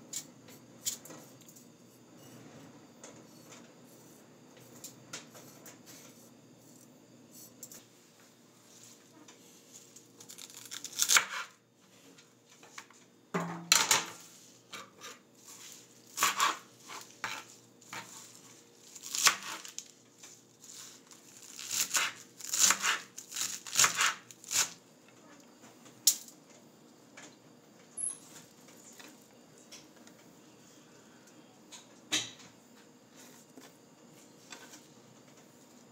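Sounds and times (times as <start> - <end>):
knife chopping on cutting board: 16.2 - 18.1, 21.7 - 23.0.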